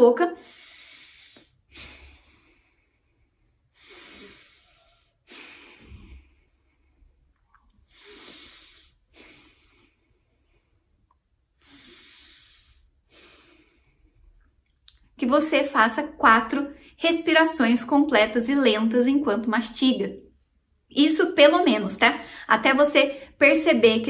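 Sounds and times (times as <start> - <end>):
woman breathing through the nose: 0.4 - 14.6.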